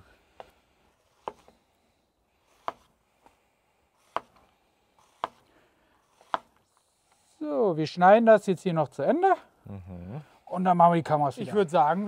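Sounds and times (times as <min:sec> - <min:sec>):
knife chopping on wooden board: 0:02.6 - 0:02.9, 0:04.1 - 0:04.4, 0:05.1 - 0:05.4, 0:06.1 - 0:06.5.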